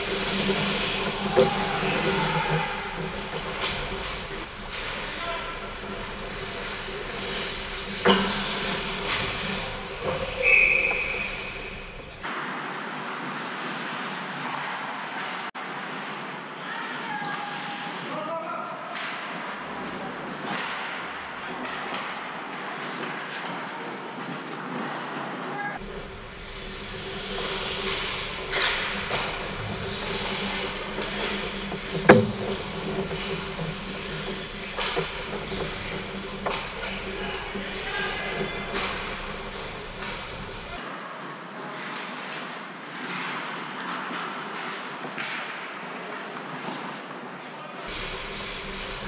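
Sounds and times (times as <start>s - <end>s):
sticks and puck clacking: 0.0s - 16.0s, 18.9s - 40.8s, 41.8s - 49.0s
skates scraping on ice: 0.0s - 18.1s, 19.1s - 49.0s
hollow rink noise: 0.0s - 49.0s
referee's whistle: 10.4s - 12.0s.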